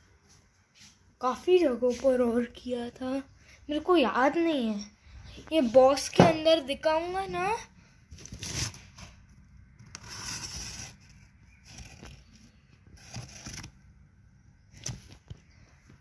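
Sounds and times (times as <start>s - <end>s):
cardboard and paper rustling: 8.1s - 13.8s, 14.6s - 16.0s.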